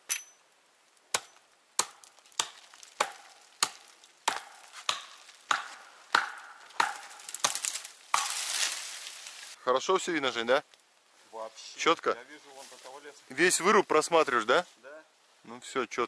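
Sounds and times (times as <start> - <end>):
hatchet chopping branches: 1.1 - 9.2.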